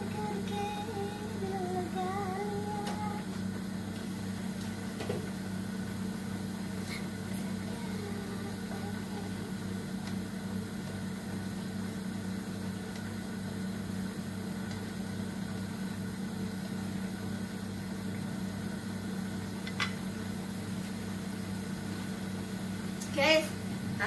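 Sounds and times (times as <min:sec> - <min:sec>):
low machine hum: 0:00.0 - 0:24.0.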